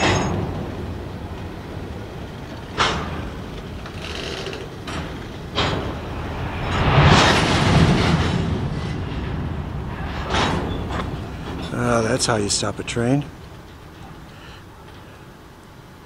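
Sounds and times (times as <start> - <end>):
coupler clanks and bangs: 0.0 - 0.8, 4.6 - 11.7
freight train braking: 0.0 - 16.0
train grinding: 0.0 - 16.0.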